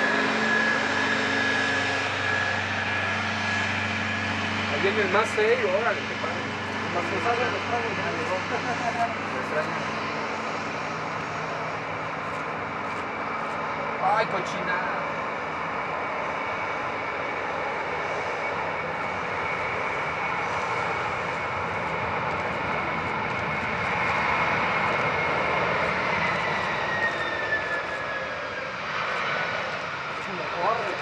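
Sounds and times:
jet engine reverse thrust roar: 0.0s - 31.0s
jet engine whine spooling down: 0.0s - 31.0s.

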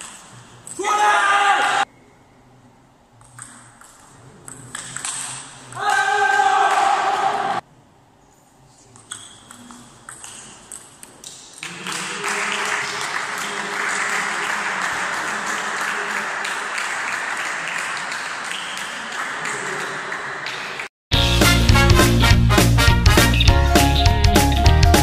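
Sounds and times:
applause: 11.6s - 20.9s.

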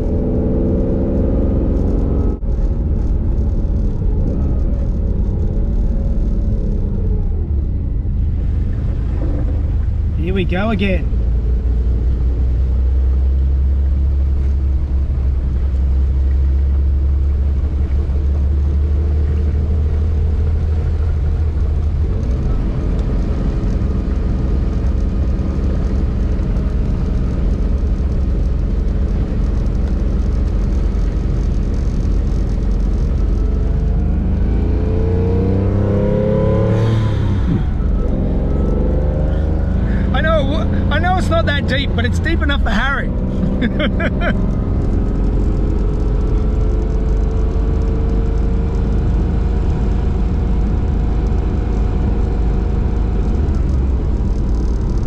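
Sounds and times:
car engine low drone: 0.0s - 55.0s
road and water noise: 0.0s - 55.0s
rising and falling tone: 33.3s - 42.2s.

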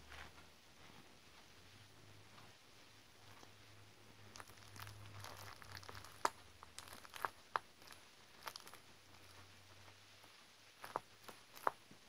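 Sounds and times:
plastic film crinkling: 4.3s - 9.5s, 10.2s - 11.8s.

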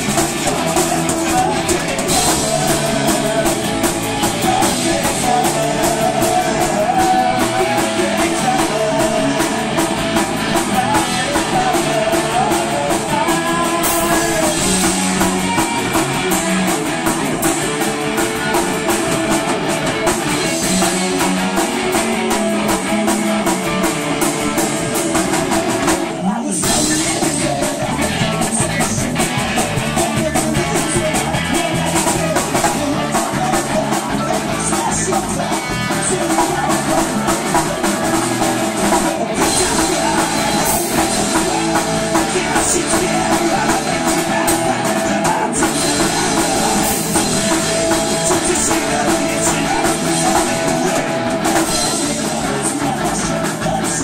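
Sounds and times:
bass guitar: 0.0s - 54.0s
drum kit: 0.0s - 54.0s
electric guitar: 0.0s - 54.0s.

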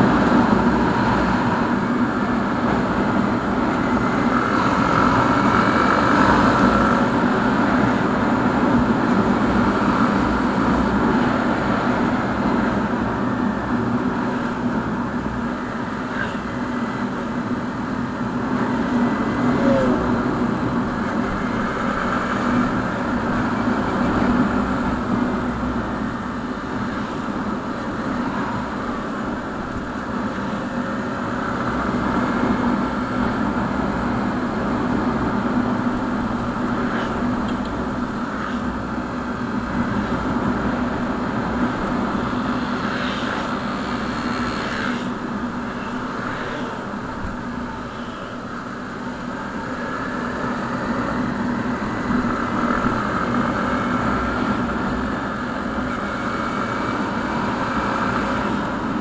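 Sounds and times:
low wind rumble: 0.0s - 59.0s.

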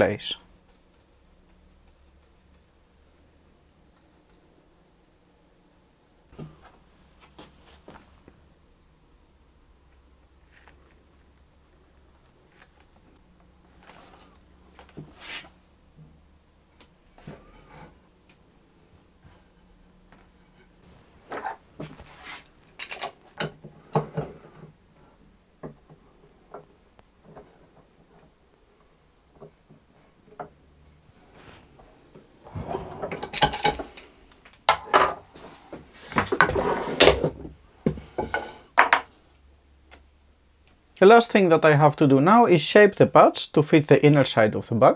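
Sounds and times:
wooden block scraping: 35.4s - 37.3s.

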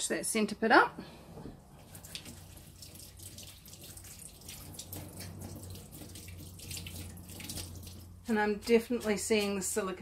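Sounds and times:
low steady hum: 0.1s - 10.0s
faint running water: 1.7s - 9.7s.

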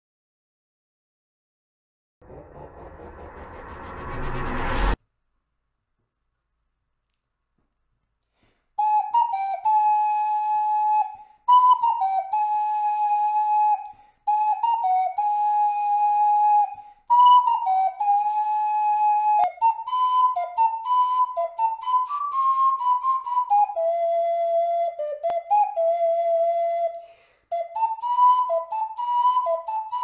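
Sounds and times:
breaths: 8.2s - 8.8s, 11.2s - 11.5s, 13.9s - 14.3s, 16.7s - 17.1s, 27.0s - 27.5s
ocarina melody: 8.8s - 30.0s.

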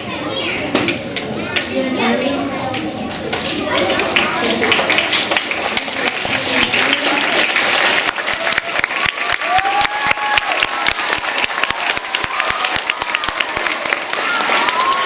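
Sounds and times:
audience applauding: 3.7s - 15.0s.

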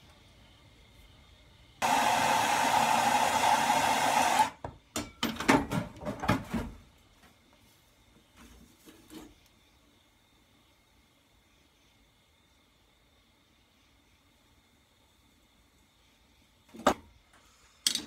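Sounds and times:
gas torch hissing: 1.8s - 4.6s
metal tools clattering and knocking: 4.9s - 6.2s.

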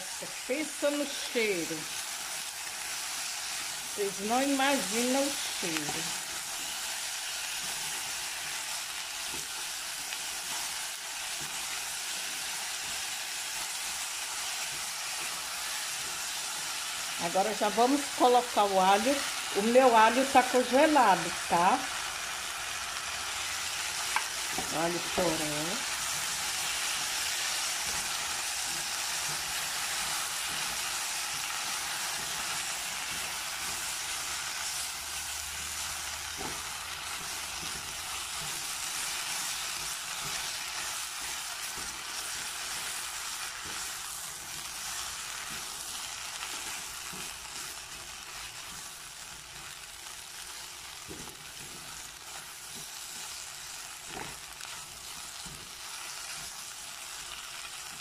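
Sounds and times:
sausage and vegetables sizzling: 0.0s - 58.0s.

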